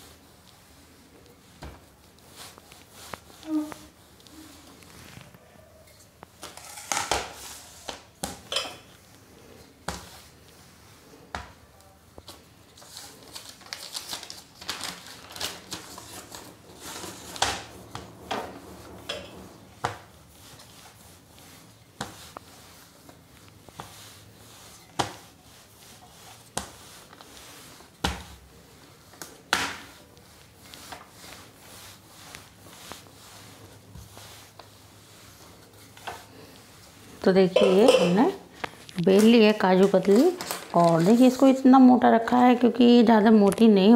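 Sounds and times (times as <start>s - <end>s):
paper rustling: 12.1s - 37.2s, 38.6s - 41.6s.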